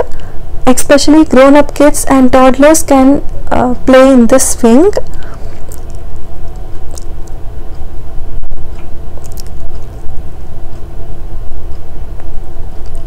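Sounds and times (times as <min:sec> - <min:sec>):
faint hum: 0:00.0 - 0:13.0
low rumble: 0:05.1 - 0:13.0.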